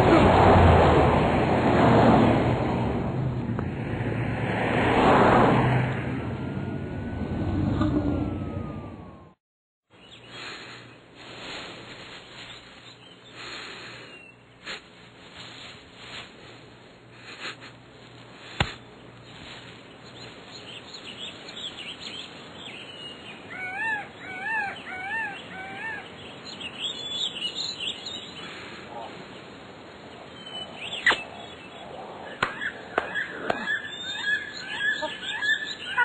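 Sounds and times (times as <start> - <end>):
birds chirping: 9.9 - 11.1, 12.0 - 14.6, 18.0 - 36.0.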